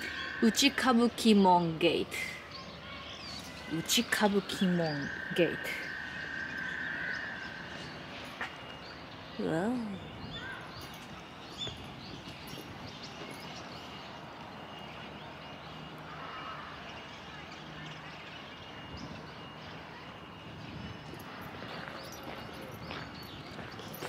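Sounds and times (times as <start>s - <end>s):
high bird chirp: 0.0s - 16.2s.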